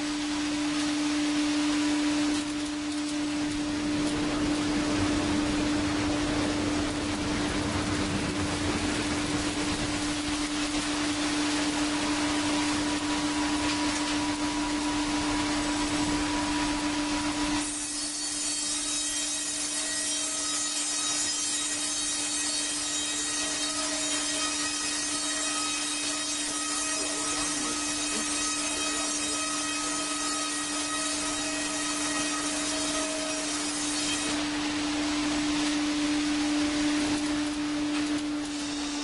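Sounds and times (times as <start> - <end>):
strong low hum: 0.0 - 17.6
band saw cutting log: 11.6 - 34.6, 35.6 - 39.0.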